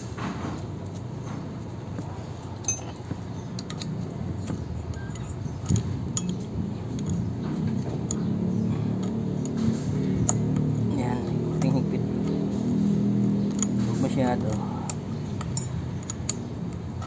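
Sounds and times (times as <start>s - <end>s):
steady low rumble: 0.1s - 17.0s
wrench clinking against bolts: 2.6s - 3.9s, 4.9s - 8.3s, 13.5s - 17.0s.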